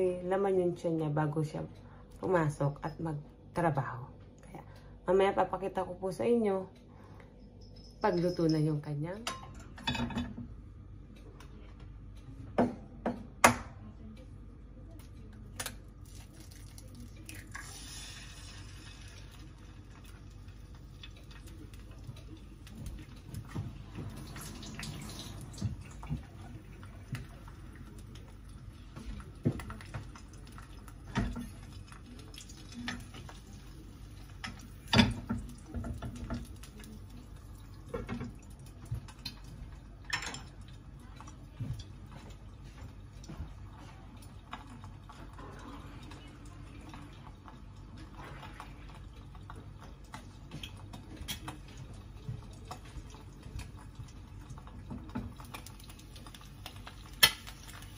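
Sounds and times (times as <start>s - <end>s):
egg frying in oil: 15.5s - 57.9s.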